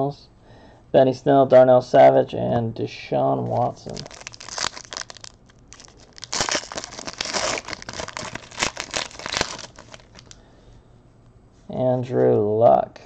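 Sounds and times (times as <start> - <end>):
foil wrapper tearing and crinkling: 3.9 - 10.4.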